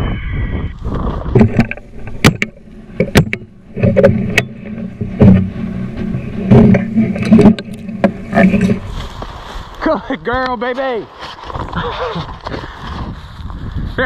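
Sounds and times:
rustling through dry grass: 0:00.7 - 0:14.0.

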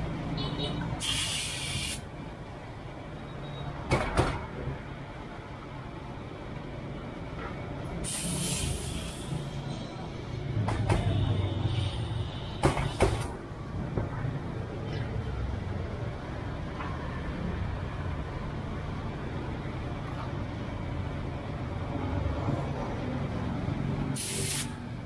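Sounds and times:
brief hiss: 0:01.0 - 0:02.0, 0:08.0 - 0:09.4, 0:24.2 - 0:24.8.

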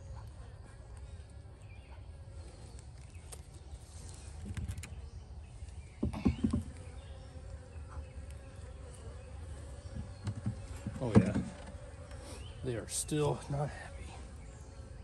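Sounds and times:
honeybees buzzing: 0:00.0 - 0:15.0
rock knocking on hive lid: 0:06.0 - 0:06.8, 0:09.9 - 0:11.8.

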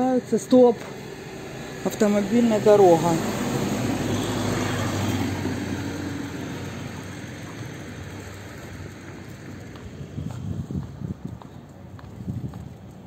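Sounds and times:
car driving past: 0:00.7 - 0:10.5.

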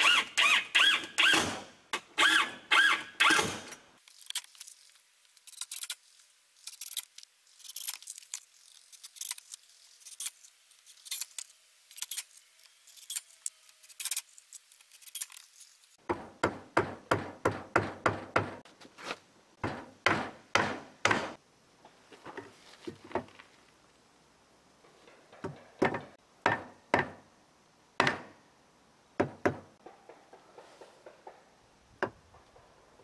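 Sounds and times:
sharp knocks on wood: 0:16.0 - 0:18.6, 0:19.6 - 0:21.4, 0:28.0 - 0:28.3.

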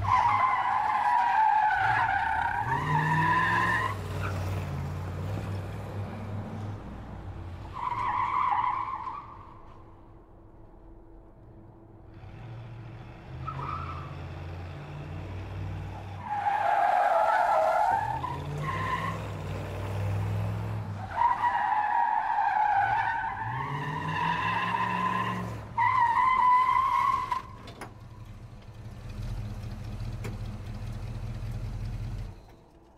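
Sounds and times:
car engine revving: 0:12.1 - 0:21.2, 0:28.3 - 0:32.5.

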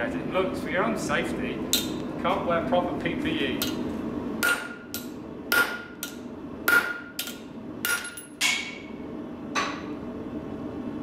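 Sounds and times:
hammer striking steel bar: 0:04.4 - 0:08.9.

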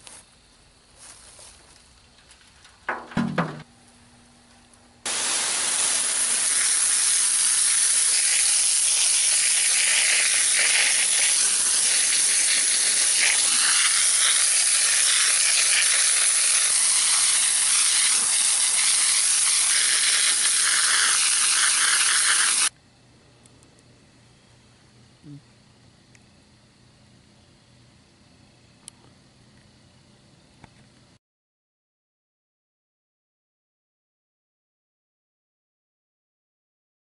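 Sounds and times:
water jet hissing on metal: 0:05.1 - 0:22.7.

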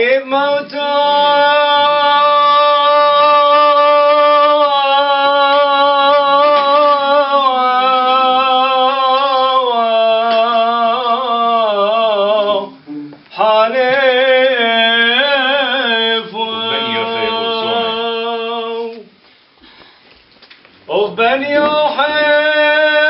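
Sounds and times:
man chanting solo: 0:13.6 - 0:18.8.

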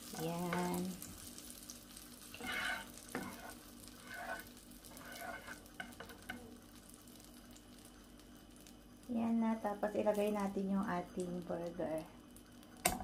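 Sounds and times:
butter sizzling in a frying pan: 0:00.0 - 0:13.0
spatula scraping a pan: 0:02.2 - 0:06.5.

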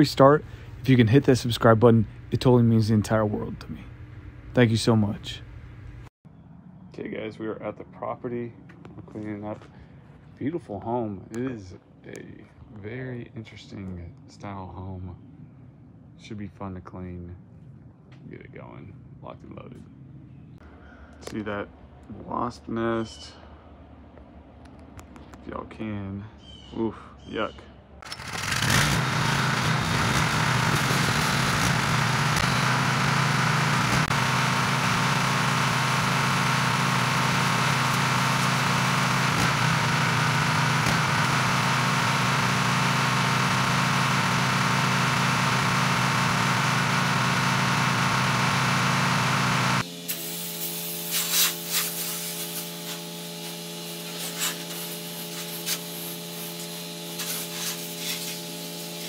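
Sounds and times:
pressure washer engine running: 0:00.0 - 0:06.0, 0:28.0 - 0:59.0
water spraying on siding: 0:28.2 - 0:59.0.

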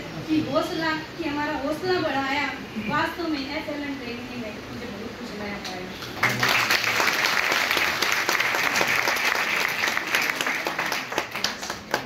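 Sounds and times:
audience applauding: 0:06.2 - 0:12.0.

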